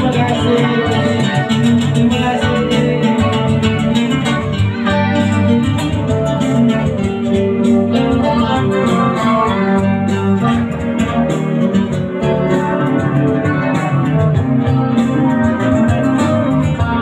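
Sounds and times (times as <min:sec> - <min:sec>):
electric guitar: 0:00.0 - 0:17.0
keyboard backing: 0:00.0 - 0:17.0.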